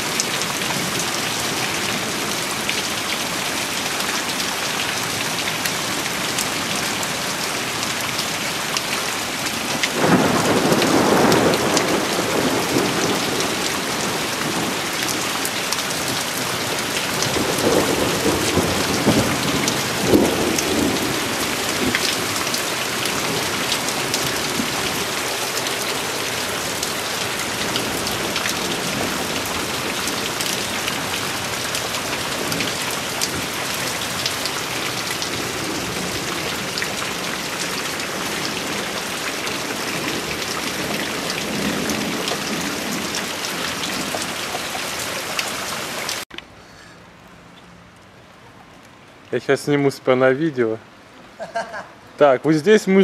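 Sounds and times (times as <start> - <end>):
heavy rain on leaves: 0.0 - 49.3, 50.8 - 53.0
thunder rumbling: 10.0 - 45.3.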